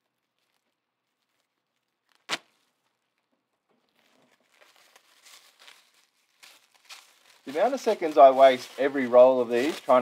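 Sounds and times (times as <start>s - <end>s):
plastic crinkling: 0.0s - 10.0s
plastic bag sharp snap: 2.1s - 2.6s.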